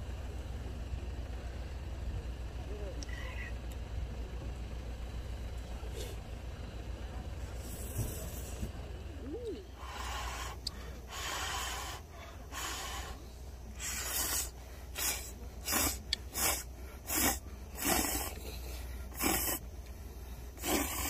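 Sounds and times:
person slurping noodles: 0:13.8 - 0:18.5, 0:19.1 - 0:19.6, 0:20.6 - 0:21.0.

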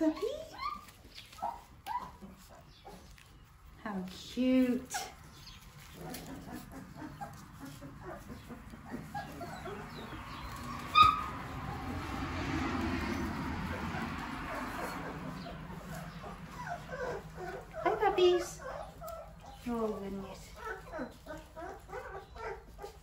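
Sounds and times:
puppy yelp: 0:00.0 - 0:03.2, 0:05.8 - 0:11.6, 0:13.7 - 0:19.7, 0:20.5 - 0:23.0
puppies whimpering: 0:00.0 - 0:23.0.

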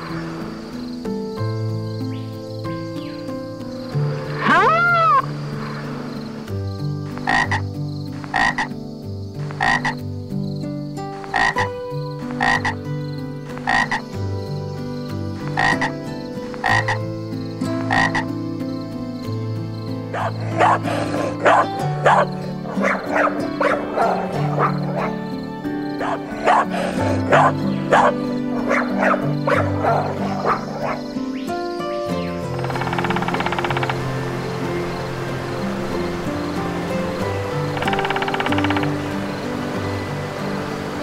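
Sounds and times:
croaking animal calls: 0:04.0 - 0:06.4, 0:07.0 - 0:08.8, 0:09.4 - 0:10.0, 0:11.0 - 0:14.2, 0:15.3 - 0:17.1, 0:17.7 - 0:18.4, 0:20.1 - 0:41.0.

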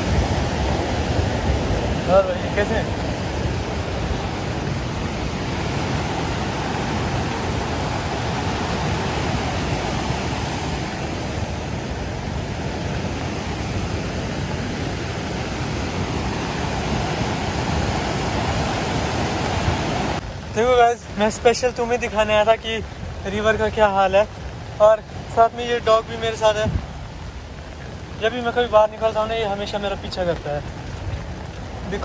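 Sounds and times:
rain on wet pavement: 0:00.0 - 0:32.0
river rushing: 0:00.0 - 0:32.0.

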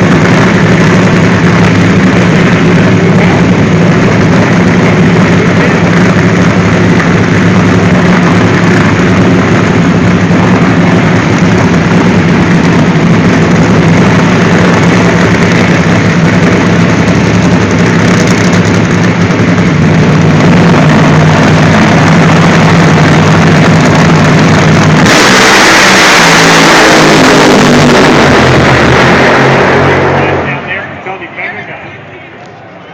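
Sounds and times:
loud drag racing engines rumbling: 0:00.0 - 0:32.9.

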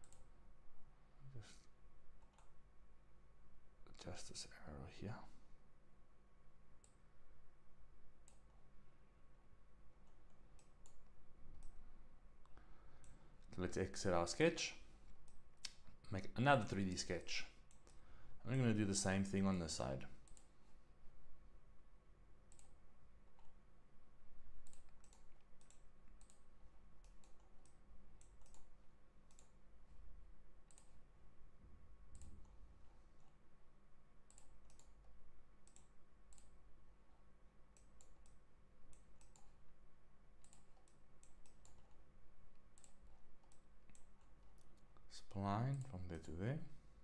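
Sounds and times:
computer mouse clicking: 0:00.0 - 0:00.3, 0:02.2 - 0:02.6, 0:06.8 - 0:07.0, 0:08.2 - 0:08.6, 0:10.0 - 0:11.8, 0:12.4 - 0:13.5, 0:16.6 - 0:18.1, 0:20.2 - 0:20.6, 0:22.5 - 0:23.6, 0:24.6 - 0:29.6, 0:30.6 - 0:31.0, 0:32.1 - 0:33.4, 0:34.2 - 0:36.6, 0:37.7 - 0:39.6, 0:40.4 - 0:45.1, 0:45.7 - 0:46.4
faint electrical hum: 0:00.0 - 0:47.0.

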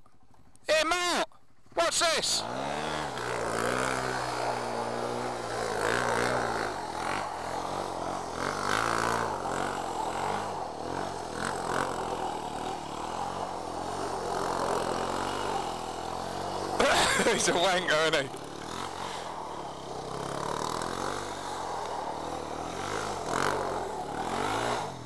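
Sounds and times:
quad engine revving: 0:01.8 - 0:25.0.

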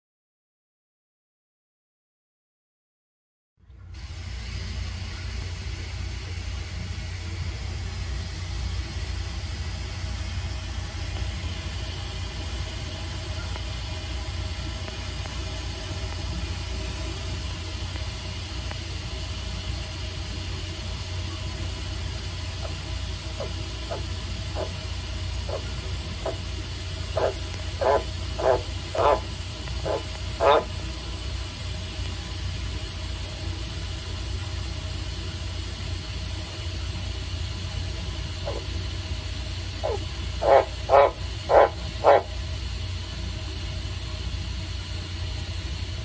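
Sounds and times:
low background hum and hiss: 0:03.6 - 0:46.0
tree frog croaking: 0:27.2 - 0:30.7, 0:39.8 - 0:42.3.

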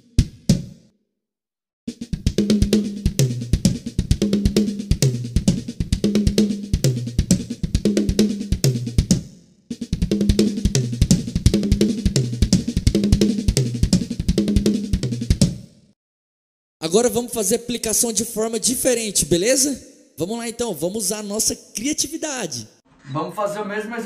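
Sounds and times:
drum kit fast strokes: 0:01.9 - 0:15.5.

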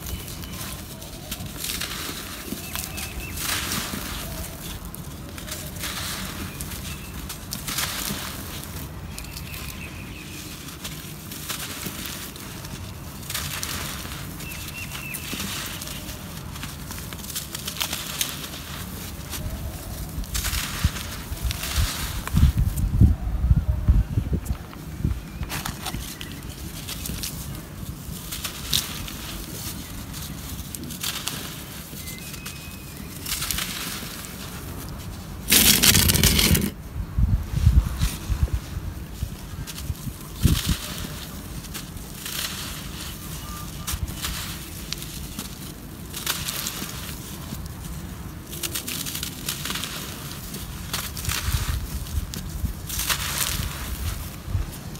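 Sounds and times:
grains and powder falling: 0:00.0 - 0:22.7, 0:25.6 - 0:36.8
dirt clumps crunching in hands: 0:00.0 - 0:23.1, 0:24.4 - 0:54.9
loud dense crunch: 0:35.4 - 0:36.8.

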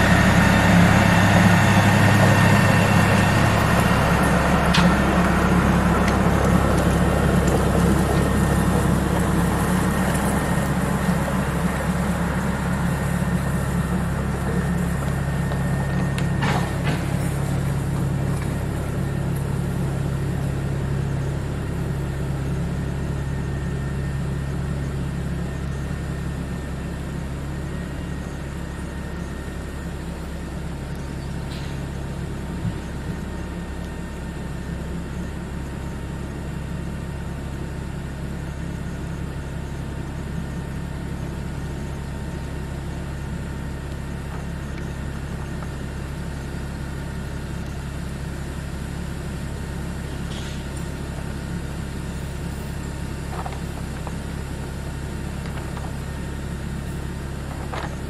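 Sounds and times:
engine idling: 0:00.0 - 0:58.0.

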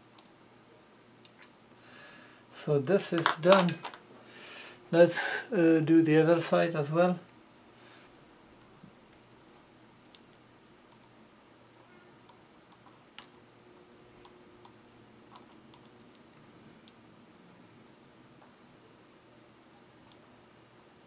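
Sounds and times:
faint steady hum: 0:00.0 - 0:21.0
tweezers clicking on circuit board: 0:10.1 - 0:11.2, 0:14.2 - 0:16.2.

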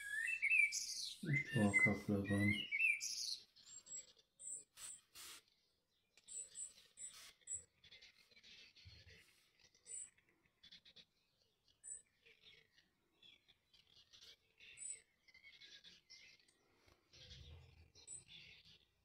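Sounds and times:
small bird chirping: 0:00.0 - 0:19.0
brush scratching on paper: 0:04.5 - 0:05.5, 0:06.6 - 0:08.3.

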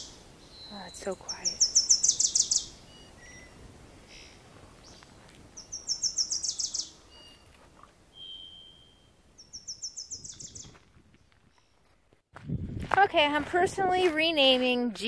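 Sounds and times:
songbird singing high notes: 0:00.0 - 0:03.7, 0:05.6 - 0:07.5, 0:08.1 - 0:10.7
thin whistled bird note: 0:06.4 - 0:09.1.

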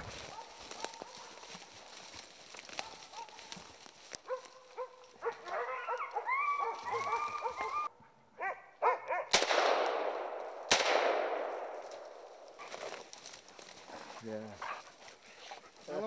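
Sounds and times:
dogs barking and yelping: 0:00.2 - 0:01.6, 0:02.7 - 0:03.6, 0:04.2 - 0:09.3
gunshots with echo: 0:09.3 - 0:12.3.

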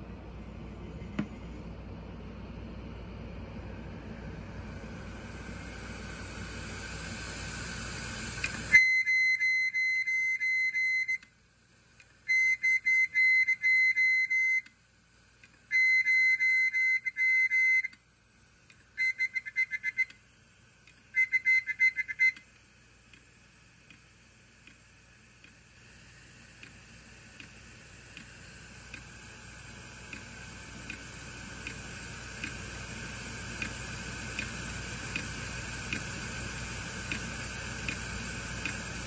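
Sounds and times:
hard drive rushing noise: 0:03.0 - 0:08.7
hard drive pulsing whistle: 0:04.2 - 0:11.4, 0:12.1 - 0:14.8, 0:15.6 - 0:18.1, 0:18.7 - 0:22.6, 0:25.4 - 0:39.0.

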